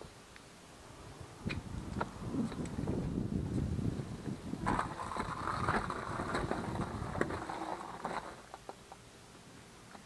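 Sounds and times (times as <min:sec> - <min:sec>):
dirt bike engine rumble: 0:01.4 - 0:08.7.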